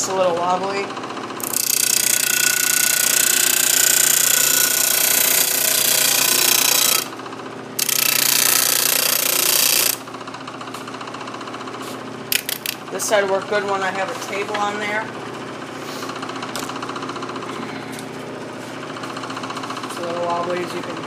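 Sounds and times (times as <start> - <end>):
electric motor running: 0.2 - 13.0
disc sander grinding wood: 1.4 - 7.2, 7.8 - 10.0.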